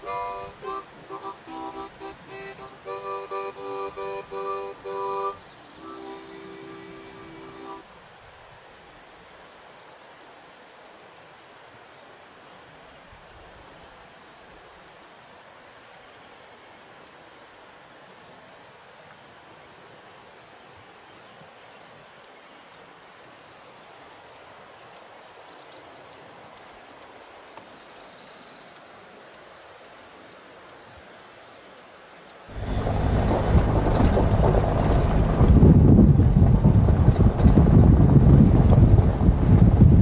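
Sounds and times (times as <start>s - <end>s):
faint bird chirps: 27.6s - 29.5s
road rumble of moving car: 32.5s - 40.0s
wind buffeting microphone: 32.5s - 40.0s.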